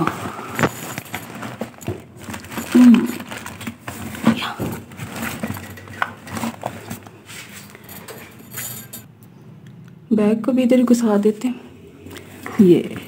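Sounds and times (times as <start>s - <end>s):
clothes rustling: 0.0s - 9.1s.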